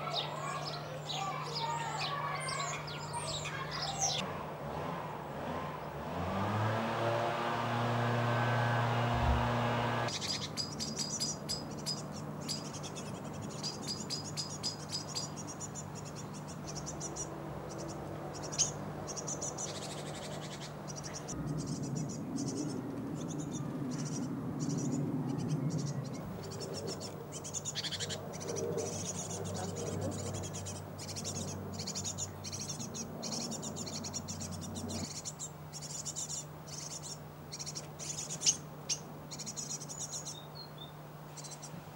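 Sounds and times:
songbirds chirping: 0.0s - 41.9s
vehicle engine running: 4.2s - 10.2s
steady low hum: 7.7s - 10.1s, 20.7s - 25.3s.

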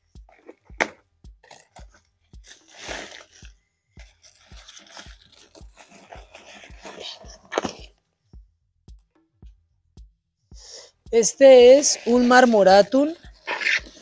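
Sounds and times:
background music with low beat: 0.0s - 14.0s
packing paper rustling: 1.4s - 7.9s.

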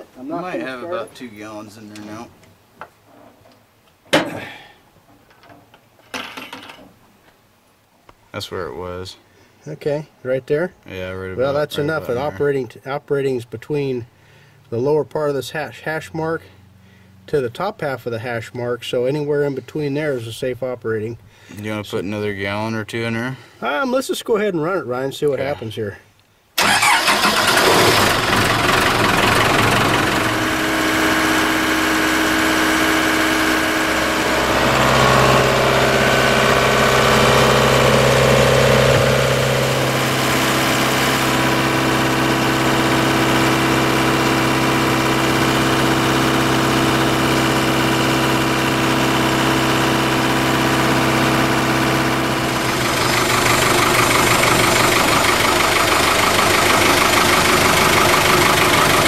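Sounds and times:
backhoe engine idling: 26.6s - 59.0s.

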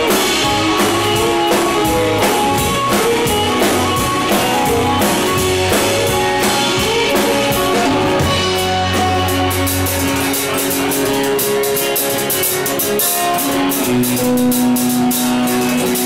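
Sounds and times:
bass guitar: 0.0s - 16.0s
drum kit beat: 0.0s - 16.0s
electric guitar: 0.0s - 16.0s.

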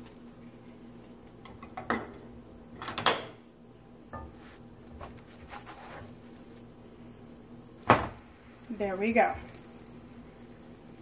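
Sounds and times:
faint steady hum: 0.0s - 11.0s
spatula scraping skillet: 4.2s - 6.3s.

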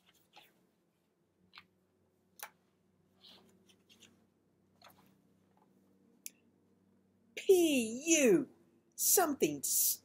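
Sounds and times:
book handling clicks and rustles: 0.0s - 0.7s, 3.2s - 5.8s.

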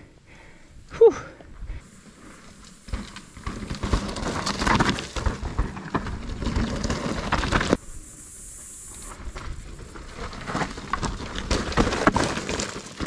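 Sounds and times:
bike rattling: 1.5s - 13.0s
tyres crunching over dirt and rocks: 1.8s - 7.8s, 9.2s - 13.0s.

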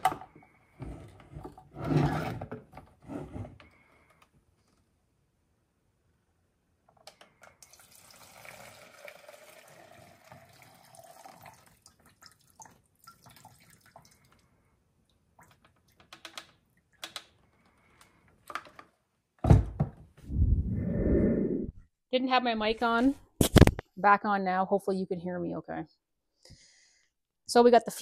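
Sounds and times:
fuel pouring into plastic cup: 7.6s - 12.4s.

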